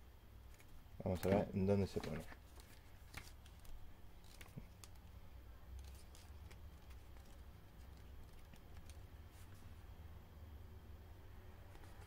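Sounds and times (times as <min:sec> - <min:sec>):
steady low hum: 0:00.0 - 0:12.0
paper rustling: 0:00.5 - 0:09.9.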